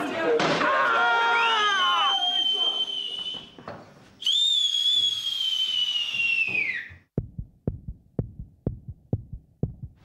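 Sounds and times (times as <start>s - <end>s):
long high whistle: 1.3s - 3.6s, 4.2s - 7.0s
heartbeat thumps: 7.0s - 10.0s.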